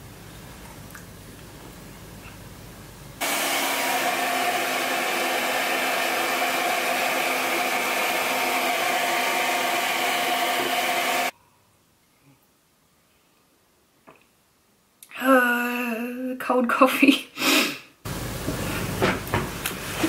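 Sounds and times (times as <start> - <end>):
hair dryer running: 3.2 - 11.3.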